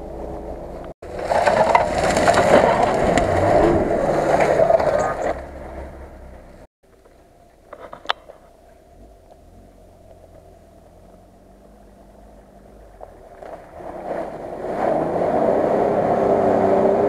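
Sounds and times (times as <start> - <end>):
vehicle engine running: 0.0 - 14.7
tyres crunching dry grass and twigs: 1.0 - 6.0, 6.9 - 14.4.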